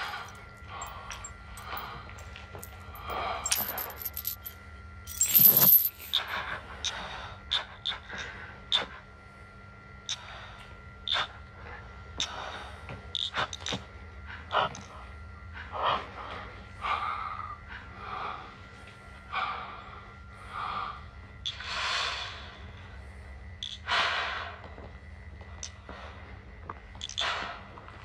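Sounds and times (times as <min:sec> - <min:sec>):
man breathing through oxygen mask: 0:19.3 - 0:23.3.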